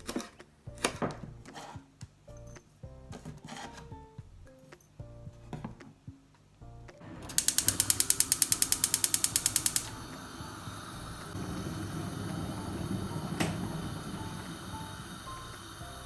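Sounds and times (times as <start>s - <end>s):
gas flame rushing: 7.0s - 16.0s
spark igniter clicking rapidly: 7.2s - 10.3s.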